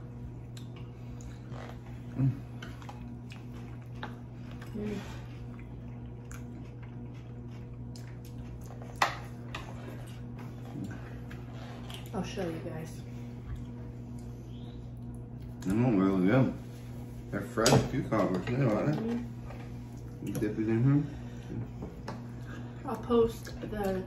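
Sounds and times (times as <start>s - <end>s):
steady low hum: 0.0s - 24.0s
quiet chewing: 0.2s - 12.2s, 13.3s - 15.8s, 18.4s - 20.5s.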